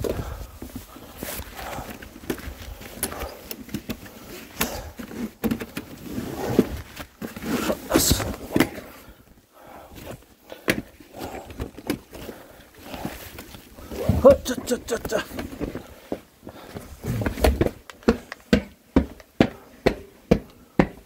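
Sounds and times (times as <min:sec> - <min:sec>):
folding chairs knocking and rustling: 0:13.0 - 0:15.9
footsteps on concrete: 0:15.3 - 0:21.0.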